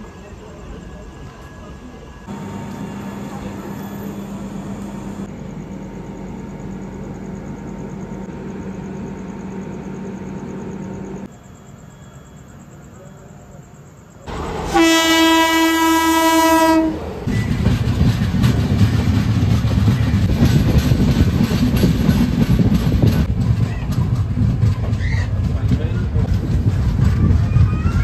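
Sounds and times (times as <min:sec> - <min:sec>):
station ambience: 0:00.0 - 0:13.0
train rolling hum: 0:00.0 - 0:28.0
train horn blast: 0:14.3 - 0:17.1.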